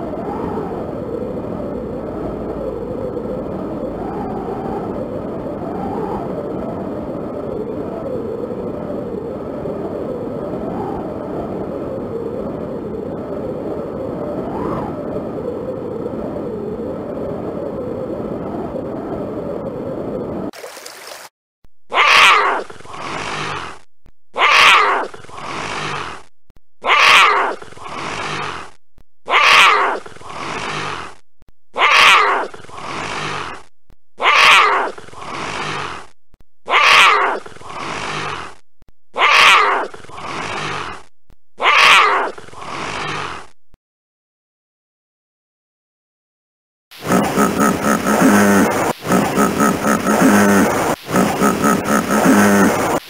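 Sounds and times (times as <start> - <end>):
wind blowing: 0.0 - 20.5
jaguar roaring: 24.4 - 26.2, 26.8 - 28.7, 29.3 - 31.1, 31.8 - 33.6, 34.2 - 36.0, 36.7 - 38.6, 39.2 - 41.0, 41.6 - 43.4, 47.0 - 53.0.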